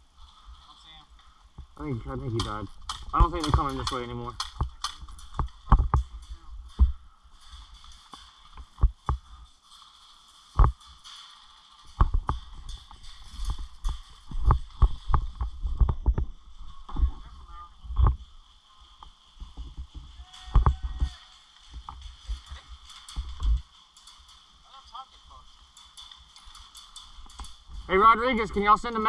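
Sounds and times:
faint steady hiss: 0.0s - 29.0s
sharp clicks: 2.3s - 6.6s.

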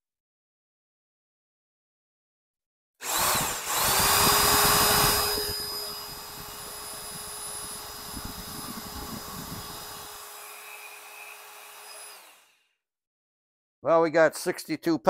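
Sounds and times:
electric drill running: 3.0s - 12.7s.

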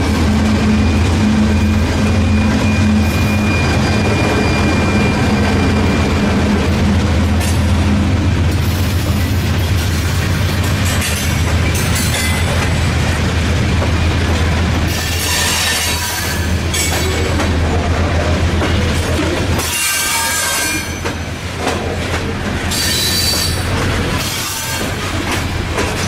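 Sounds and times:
train wheels rumbling on rail: 0.0s - 26.0s
high-pitched wheel squeal: 0.8s - 6.2s.

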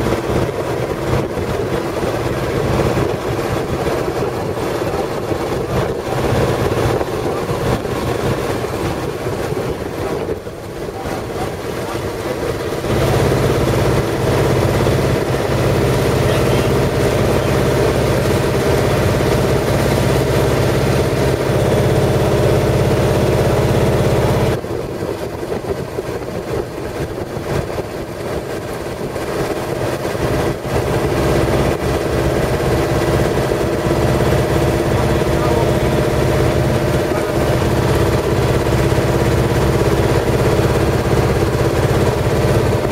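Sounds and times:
boat engine running: 0.0s - 42.9s.

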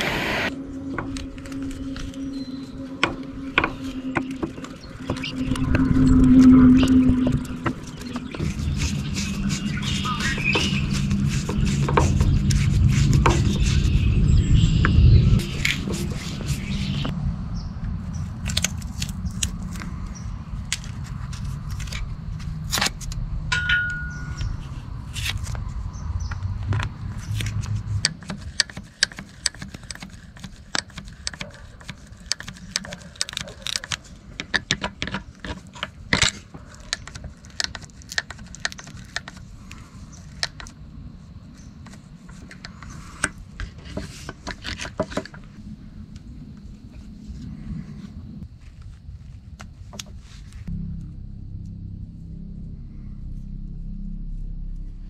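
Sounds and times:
low rumble: 0.0s - 28.2s, 45.4s - 55.0s.

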